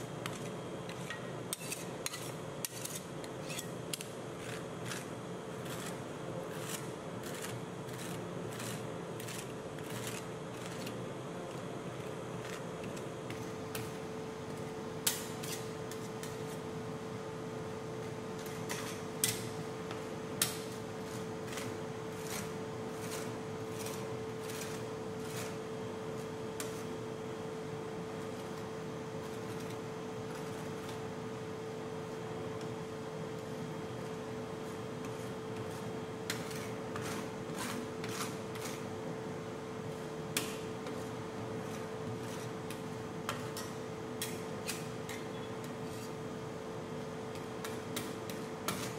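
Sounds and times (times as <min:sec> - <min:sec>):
steady hum: 0:00.0 - 0:48.9
metal spatulas scraping steel plate: 0:00.2 - 0:05.0
metal spatula scraping steel plate: 0:00.2 - 0:11.0, 0:21.5 - 0:25.6.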